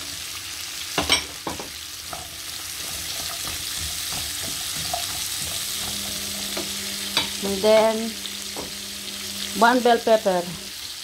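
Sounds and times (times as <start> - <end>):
vegetables sizzling in oil: 0.0 - 11.0.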